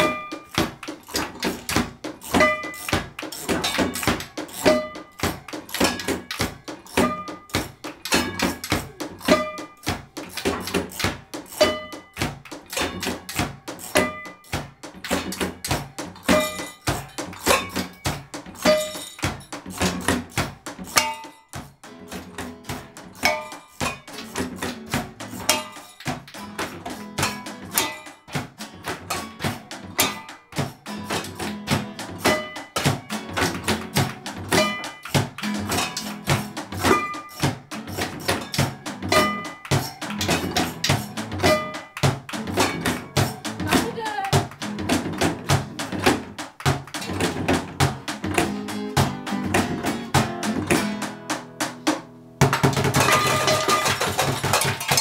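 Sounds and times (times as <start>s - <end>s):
metal pan ringing: 0.0s - 20.2s, 20.8s - 21.6s, 23.1s - 28.4s, 29.1s - 31.1s, 32.1s - 44.2s, 52.4s - 55.0s
pans and utensils knocked rhythmically: 0.0s - 55.0s
strummed acoustic guitar: 0.0s - 55.0s.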